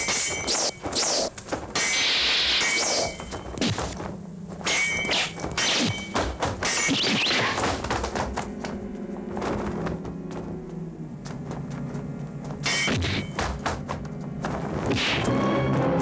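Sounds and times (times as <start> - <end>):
background music: 7.6 - 16.0.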